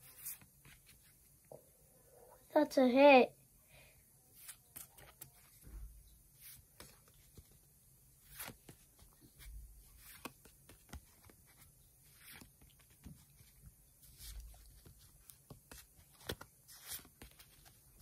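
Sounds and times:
cards clicking and rustling: 4.4s - 5.7s, 8.2s - 18.0s.

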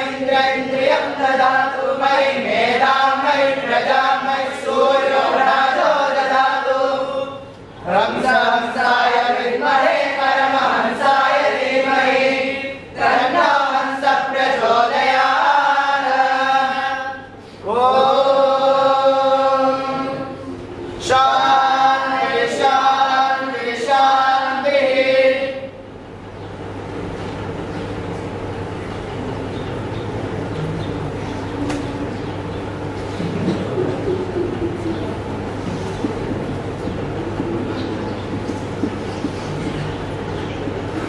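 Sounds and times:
boys chanting in unison: 0.0s - 25.7s.

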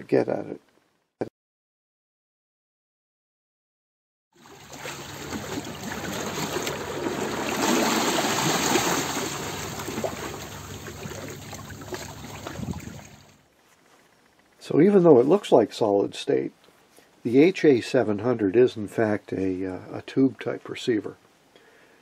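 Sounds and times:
running water: 4.4s - 13.4s.

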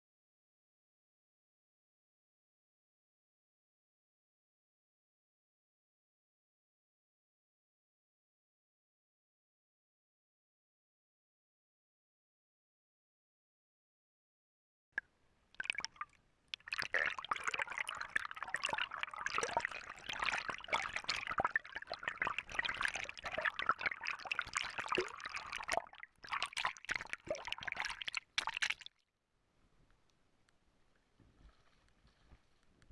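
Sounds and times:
underwater stream crackling and gurgling: 15.6s - 28.9s.

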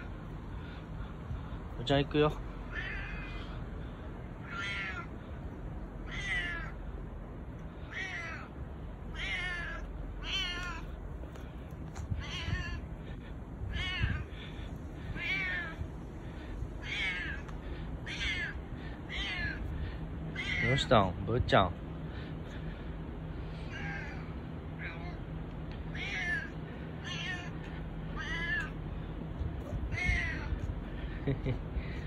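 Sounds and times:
cat meowing hoarsely: 2.7s - 3.5s, 4.4s - 5.2s, 6.0s - 6.8s, 7.9s - 8.5s, 9.1s - 10.9s, 12.2s - 12.9s, 13.7s - 14.4s, 15.1s - 15.8s, 16.8s - 19.7s, 20.3s - 20.9s, 23.7s - 25.3s, 25.9s - 28.8s, 29.6s - 30.7s.

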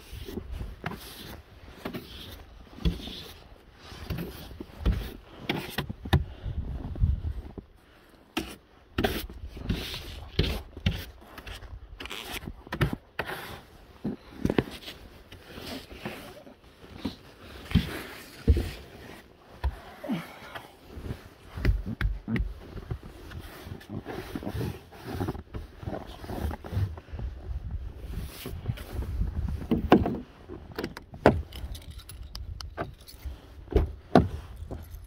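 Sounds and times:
brush scraping snow off car: 23.3s - 26.9s.

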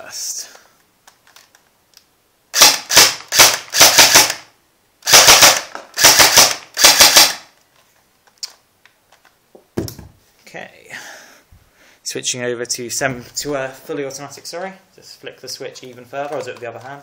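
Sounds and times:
airsoft gun firing single shots: 2.6s - 7.5s.

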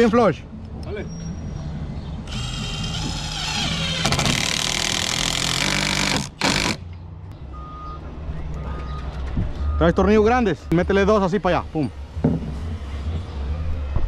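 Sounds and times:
impact driver whining and hammering: 2.3s - 6.8s.

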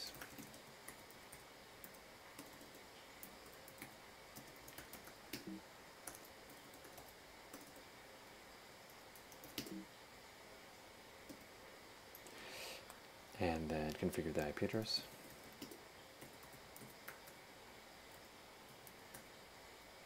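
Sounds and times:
typing on computer keyboard: 0.0s - 7.8s, 9.2s - 9.8s, 15.2s - 17.4s.

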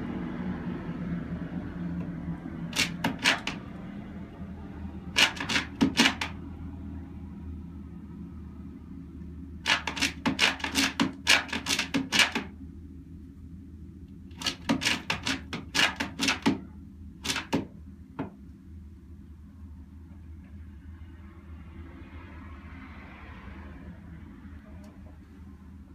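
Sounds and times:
hen scratching wooden floor: 2.7s - 3.7s, 5.2s - 6.4s, 9.7s - 12.5s, 14.4s - 17.6s.

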